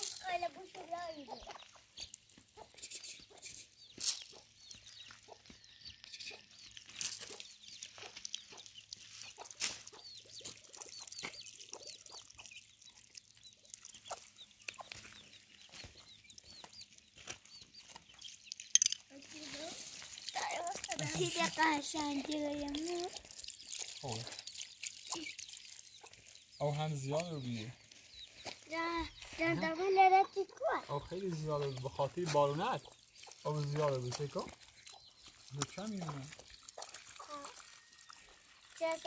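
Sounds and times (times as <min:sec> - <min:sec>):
chicks peeping: 0:00.3 - 0:38.4
hen clucking: 0:00.4 - 0:06.6, 0:28.7 - 0:37.6.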